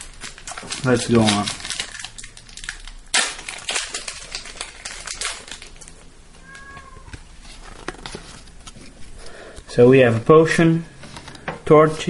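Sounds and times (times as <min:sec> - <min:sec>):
foil wrapper crinkling: 0:00.0 - 0:09.5.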